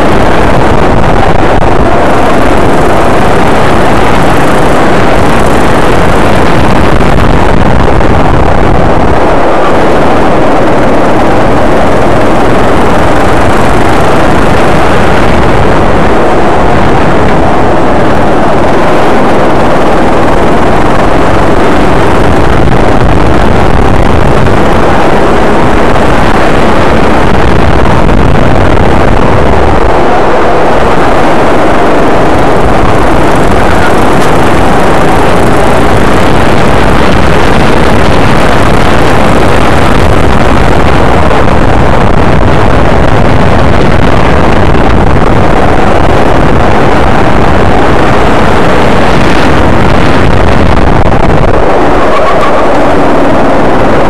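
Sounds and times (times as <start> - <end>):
go-kart engine running loud: 0.0 - 49.7, 51.4 - 54.0.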